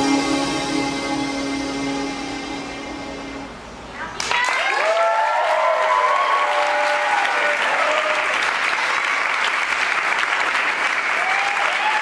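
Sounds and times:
audience whooping: 0:04.2 - 0:08.4, 0:11.1 - 0:12.0
audience clapping: 0:04.2 - 0:12.0.

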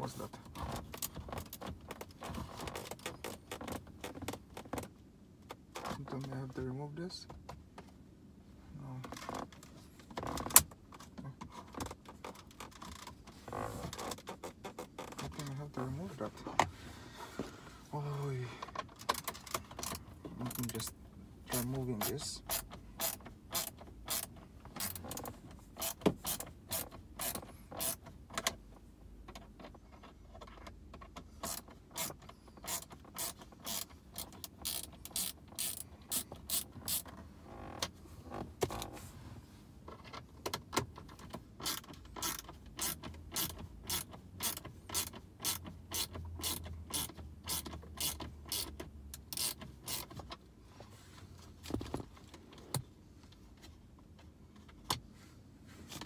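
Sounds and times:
ratchet driver clicking: 0:21.5 - 0:28.1, 0:31.0 - 0:37.1, 0:41.6 - 0:50.3.

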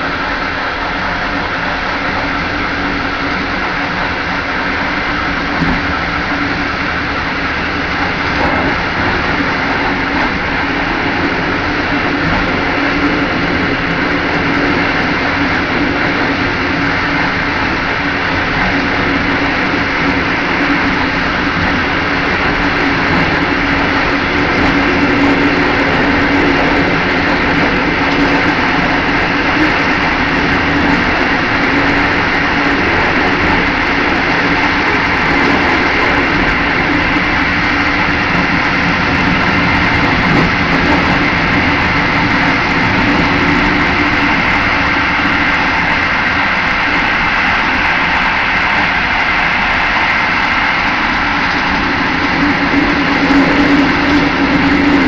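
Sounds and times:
train wheels rumbling on rail: 0:00.0 - 0:55.0.

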